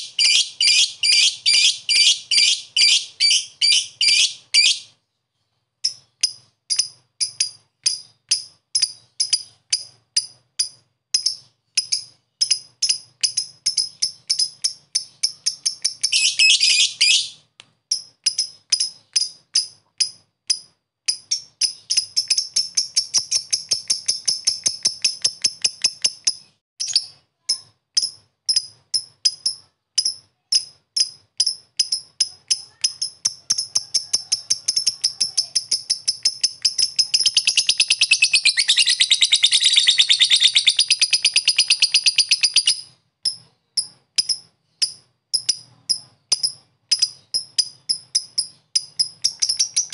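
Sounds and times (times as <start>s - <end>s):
lovebird chattering trill: 0.0s - 4.9s, 11.2s - 17.4s, 21.1s - 49.9s
lovebird chirping: 0.0s - 49.9s.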